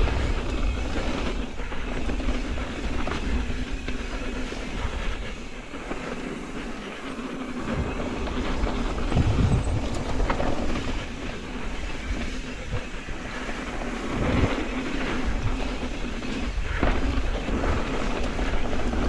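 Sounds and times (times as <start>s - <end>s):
bike tyres rolling on dirt: 0.0s - 19.0s
wind on microphone: 0.0s - 19.0s
bike chain and frame rattling: 7.8s - 13.9s.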